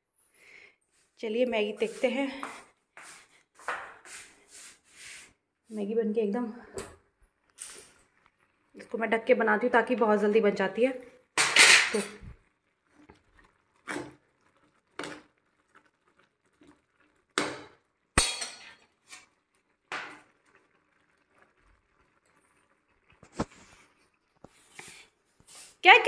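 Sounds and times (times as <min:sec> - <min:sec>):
spatula scraping a pan: 0:13.8 - 0:14.2, 0:18.3 - 0:20.3.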